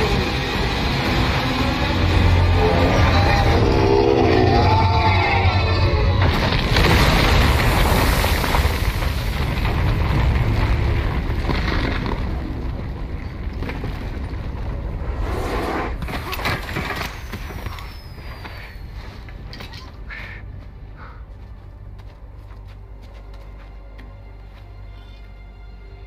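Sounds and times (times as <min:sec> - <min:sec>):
deep rumble: 0:00.0 - 0:18.0
falling debris knocking: 0:06.2 - 0:14.7.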